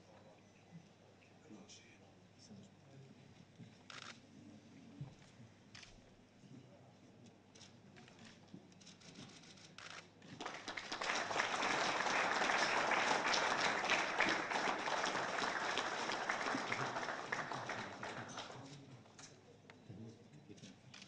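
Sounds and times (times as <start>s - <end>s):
audience applauding: 10.3s - 18.8s.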